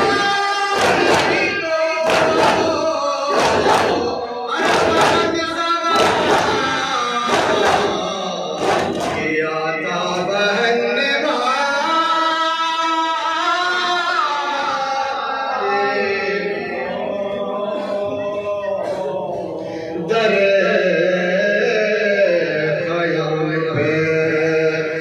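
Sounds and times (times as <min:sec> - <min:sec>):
men chanting in unison: 0:00.0 - 0:25.0
chest beating slaps: 0:00.7 - 0:09.3.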